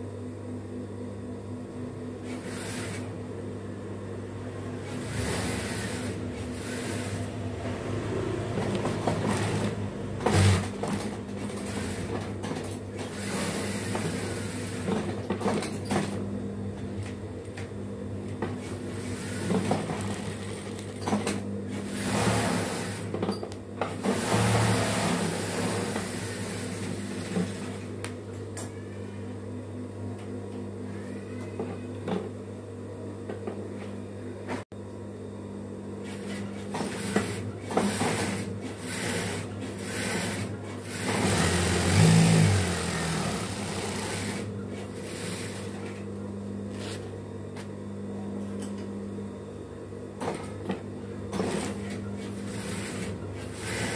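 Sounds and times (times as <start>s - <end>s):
steady motor hum: 0.0s - 15.4s, 16.2s - 53.9s
sewing machine stitching: 4.8s - 7.3s, 8.4s - 15.2s, 18.9s - 23.1s, 23.9s - 27.8s, 36.8s - 45.7s, 52.4s - 53.9s.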